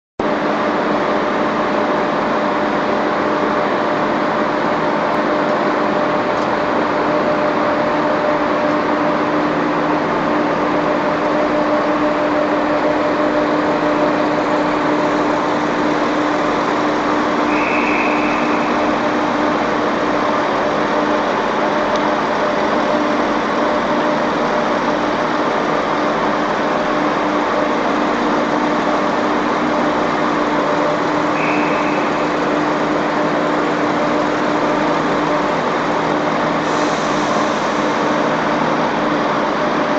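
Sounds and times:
train diesel engines idling: 0.2 - 39.9
short high beep: 17.5 - 19.1, 31.4 - 32.4.

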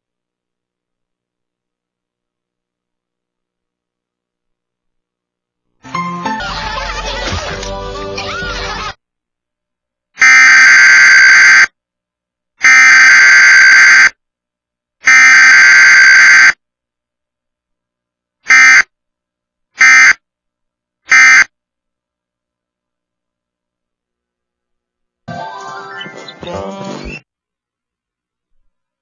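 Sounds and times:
harsh buzzing data tone bursts: 10.2 - 11.7, 12.6 - 14.2, 15.0 - 16.6, 18.5 - 18.9, 19.8 - 20.2, 21.1 - 21.5.

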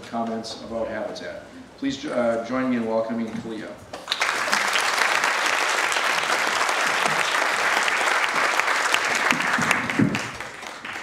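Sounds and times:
audience clapping: 3.9 - 11.0.

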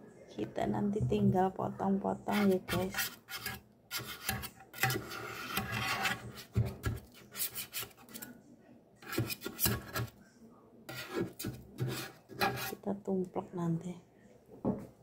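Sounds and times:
blade scraping metal cake pan: 2.3 - 8.3, 9.0 - 10.1, 10.9 - 12.8.

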